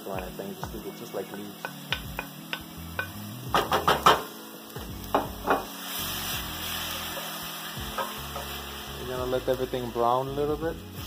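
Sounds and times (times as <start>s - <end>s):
oil sizzling: 0.0s - 11.0s.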